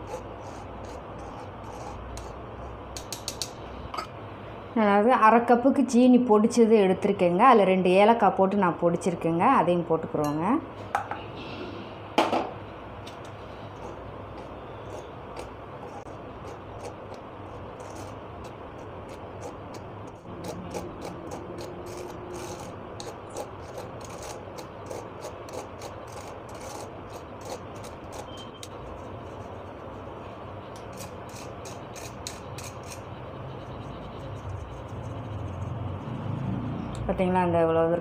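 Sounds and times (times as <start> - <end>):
low background hum: 0.0 - 38.0
spoon scraping wire-mesh sieve: 13.8 - 29.2, 30.9 - 33.0.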